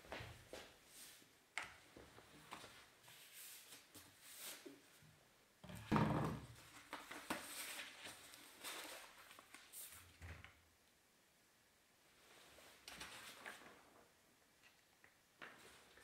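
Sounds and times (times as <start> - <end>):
paper poster rustling: 6.6 - 10.1, 12.6 - 14.0.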